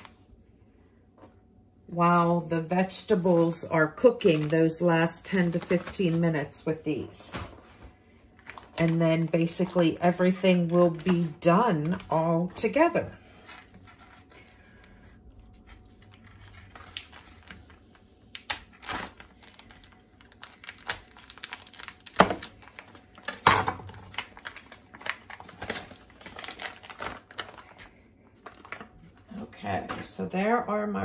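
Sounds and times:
packaging crinkling and tearing: 0:03.8 - 0:07.6, 0:08.3 - 0:12.8, 0:13.4 - 0:29.3.

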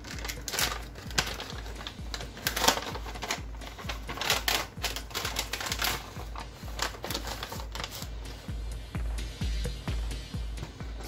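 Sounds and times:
crinkling and clicking handling: 0:00.0 - 0:08.4
background music with low beat: 0:00.0 - 0:11.0.

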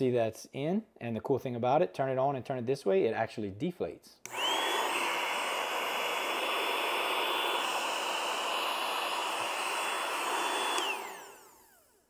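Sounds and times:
electric air pump whirring: 0:04.3 - 0:12.0.

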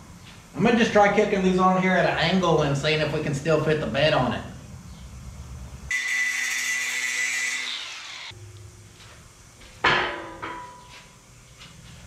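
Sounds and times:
angle grinder grinding steel: 0:05.9 - 0:08.4
ringing metal clank: 0:09.9 - 0:10.9.

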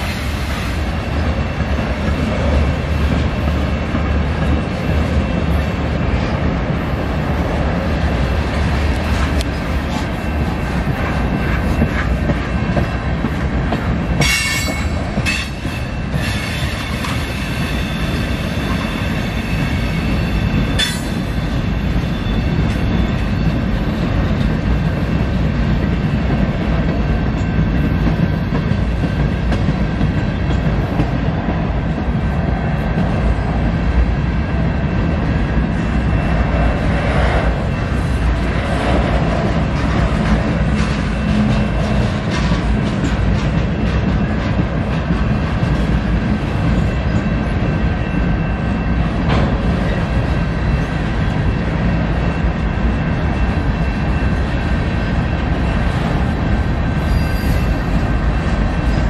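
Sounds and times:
freight train cars rolling: 0:00.0 - 0:59.0
train wheel squeals: 0:09.0 - 0:13.3, 0:13.9 - 0:25.3, 0:25.9 - 0:30.7, 0:35.7 - 0:59.0.

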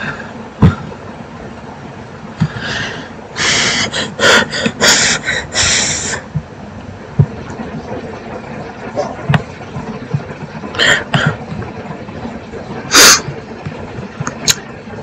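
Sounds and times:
soft low thumps: 0:06.3 - 0:07.5.

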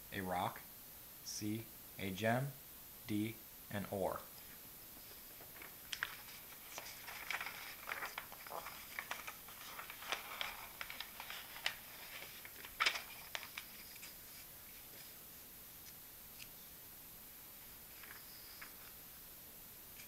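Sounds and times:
paper pages rustling: 0:05.0 - 0:15.2, 0:17.7 - 0:19.0.

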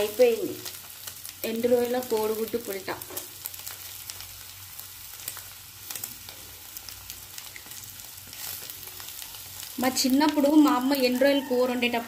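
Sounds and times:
curry sizzling in a pan: 0:00.0 - 0:12.0.

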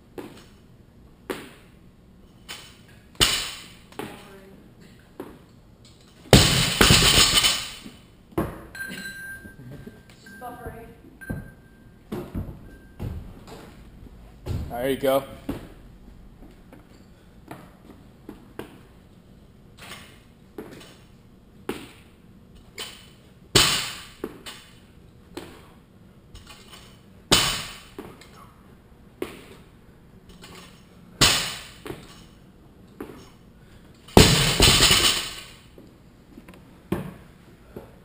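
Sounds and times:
barbell dropped on rubber floor: 0:02.6 - 0:03.8, 0:06.3 - 0:07.8, 0:23.6 - 0:24.7, 0:27.3 - 0:28.0, 0:30.4 - 0:32.2, 0:34.1 - 0:35.6.

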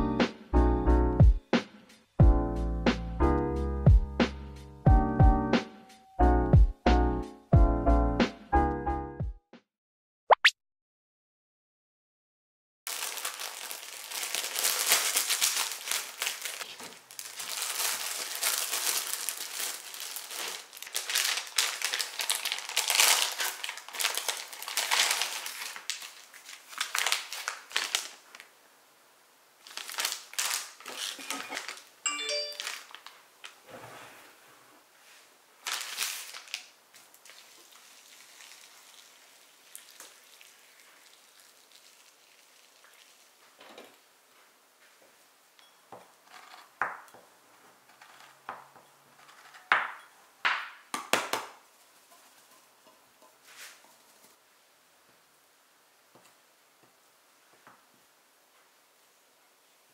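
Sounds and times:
plastic packaging crinkling: 0:12.9 - 0:28.5, 0:29.6 - 0:33.6, 0:35.6 - 0:43.4
water pouring into a bowl: 0:37.2 - 0:43.4.

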